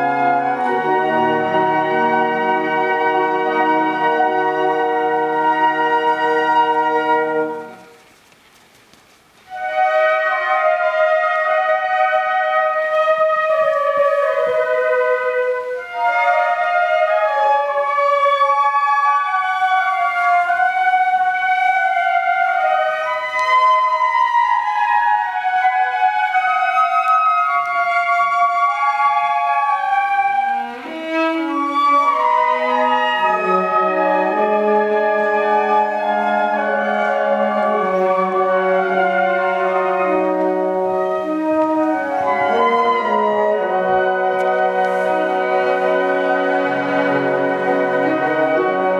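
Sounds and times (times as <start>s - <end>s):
flute ensemble playing slow melody: 0.0s - 8.0s, 9.5s - 48.9s.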